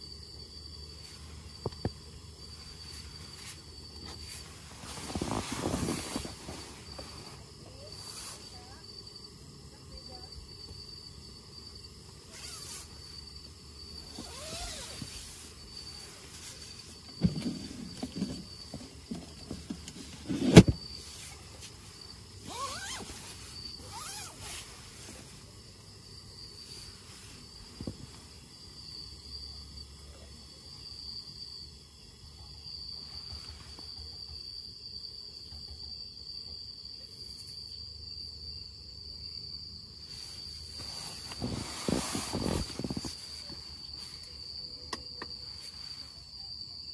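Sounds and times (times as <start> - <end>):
crickets chirping: 0.0 - 46.9
person rustling in a tent: 0.8 - 8.8, 12.2 - 25.6, 26.5 - 28.4, 33.0 - 34.0, 40.0 - 44.7, 45.4 - 46.3.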